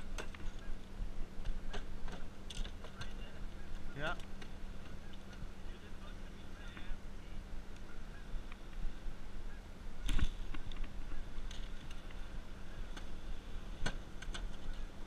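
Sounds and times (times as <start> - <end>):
low machine hum: 0.0 - 15.0.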